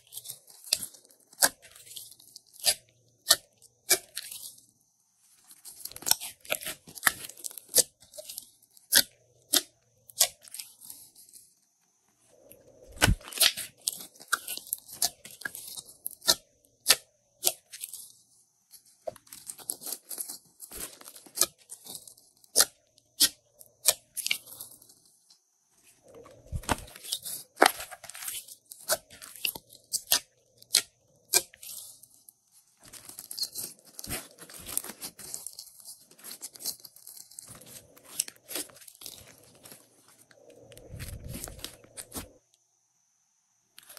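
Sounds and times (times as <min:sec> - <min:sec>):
slime squelching and popping: 0:12.9 - 0:15.6.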